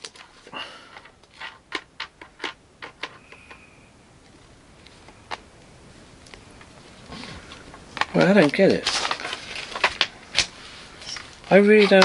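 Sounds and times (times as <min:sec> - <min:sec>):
plastic bag clicks and crinkles: 0:07.4 - 0:12.0.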